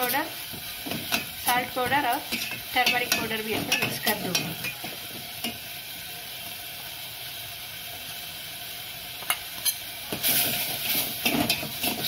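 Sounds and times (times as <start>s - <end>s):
paste sizzling in oil: 0.0s - 12.0s.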